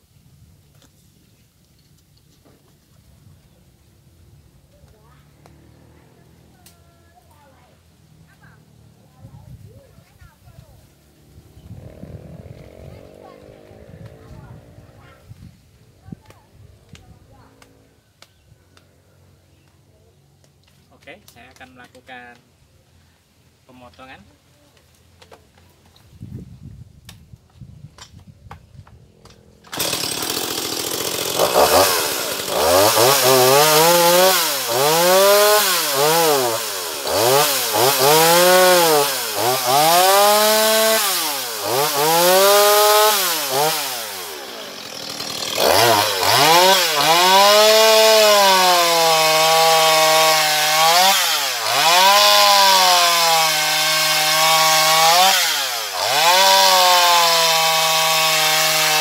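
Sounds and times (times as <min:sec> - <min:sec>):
chainsaw revving and cutting log: 0:05.3 - 0:06.8, 0:11.6 - 0:15.0, 0:29.3 - 0:59.0.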